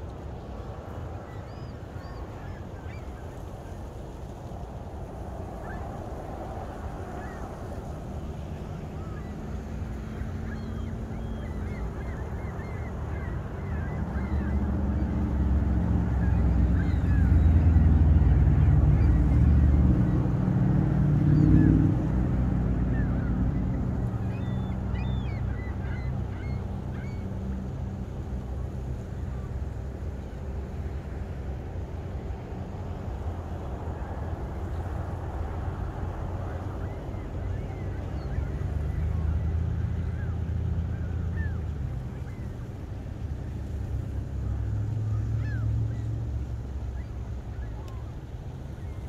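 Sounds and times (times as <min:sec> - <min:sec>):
gulls calling: 0:00.0 - 0:49.0
low engine rumble: 0:00.0 - 0:49.0.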